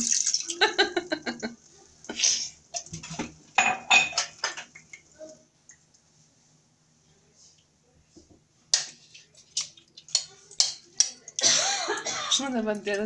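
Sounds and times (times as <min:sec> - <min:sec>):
water pouring into metal pot: 0:00.0 - 0:00.8.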